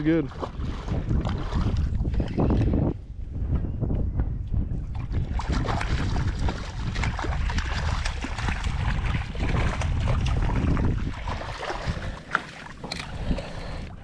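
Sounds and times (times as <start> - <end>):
wind buffeting microphone: 0.0 - 14.0
fish thrashing and splashing: 5.0 - 14.0.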